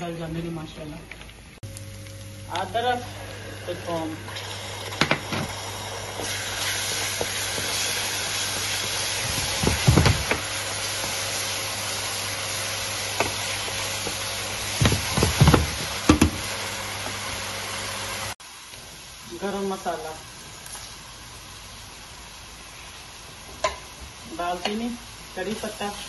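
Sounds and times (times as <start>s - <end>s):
onion paste sizzling in a pan: 1.7s - 26.0s
wooden spatula knocking on pan: 9.2s - 10.4s, 14.8s - 16.5s.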